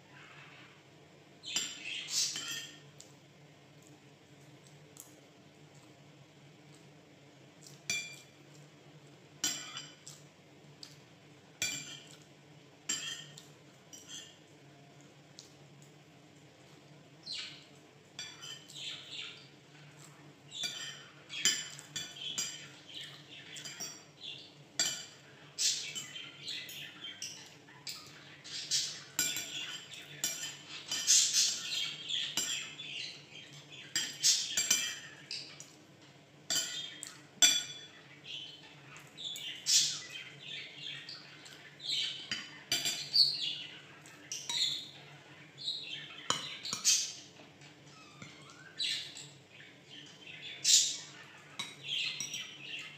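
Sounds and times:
bird chirping and squawking: 0:01.4 - 0:02.8, 0:25.3 - 0:35.6, 0:37.9 - 0:52.9
cutlery clinking on bowls: 0:01.5 - 0:03.1, 0:07.6 - 0:08.6, 0:09.4 - 0:11.0, 0:11.6 - 0:12.3, 0:12.9 - 0:14.4, 0:18.2 - 0:35.8, 0:36.5 - 0:38.1, 0:38.9 - 0:45.2, 0:46.1 - 0:47.5, 0:50.7 - 0:52.8.

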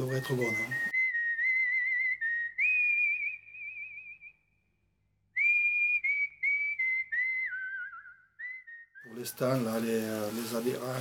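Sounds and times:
person whistling to a dog: 0:00.1 - 0:04.5, 0:05.3 - 0:09.2.

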